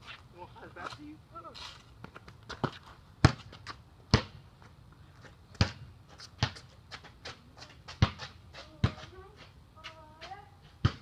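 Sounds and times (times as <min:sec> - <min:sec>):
basketball bouncing: 0:02.5 - 0:04.4, 0:05.5 - 0:05.8, 0:06.4 - 0:06.7, 0:07.9 - 0:09.1, 0:10.8 - 0:11.0.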